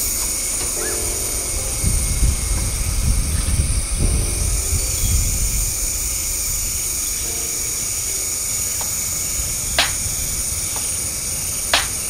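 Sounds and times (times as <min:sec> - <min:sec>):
low rumble: 0:00.0 - 0:10.6
high-pitched insect drone: 0:00.0 - 0:12.0.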